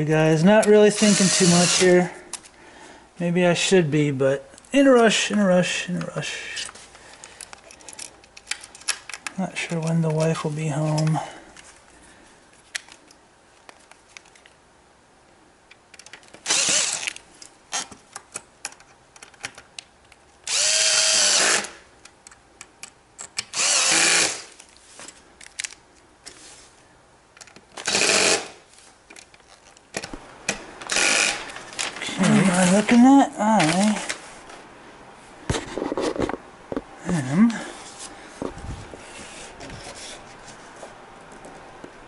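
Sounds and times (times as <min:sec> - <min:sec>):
drill driving screws into wood: 0:01.0 - 0:02.0, 0:16.4 - 0:17.2, 0:20.5 - 0:21.8, 0:23.5 - 0:24.6, 0:27.8 - 0:28.6, 0:30.9 - 0:31.4.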